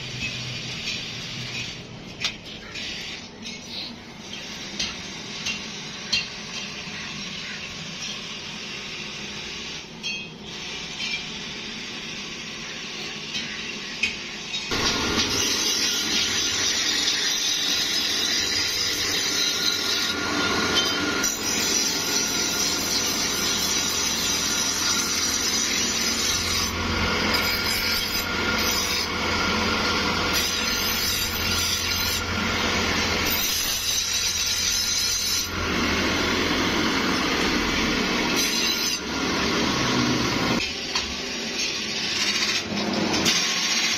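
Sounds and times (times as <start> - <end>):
blade grinding rasp: 14.7 - 40.6
grinding wheel motor hum: 14.7 - 43.3.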